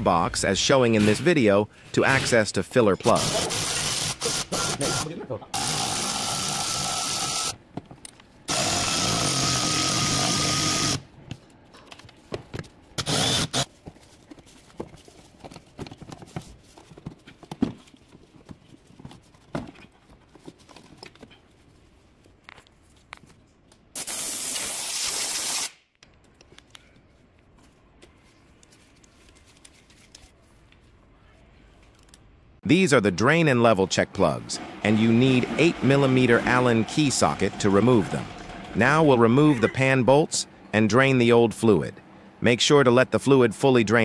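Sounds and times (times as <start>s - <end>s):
electric ratchet motor whine: 5.6s - 7.6s, 8.5s - 11.0s.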